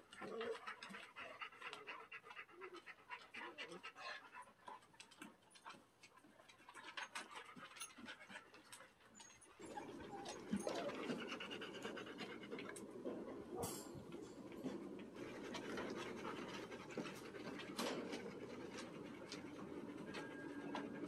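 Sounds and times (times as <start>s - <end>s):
dog panting: 0.0s - 21.0s.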